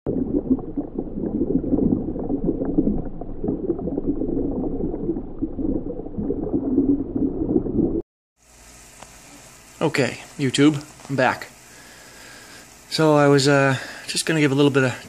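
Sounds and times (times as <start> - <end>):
muffled bubbling water: 0.1 - 8.0.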